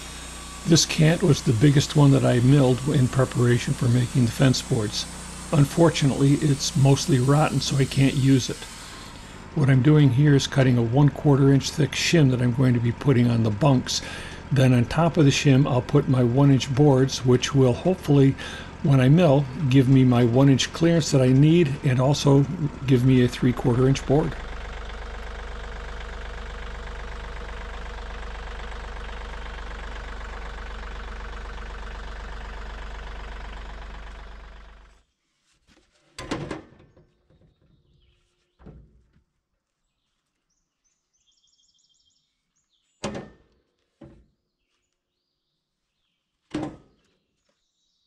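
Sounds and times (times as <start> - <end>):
sawmill engine idling: 0.0 - 35.0.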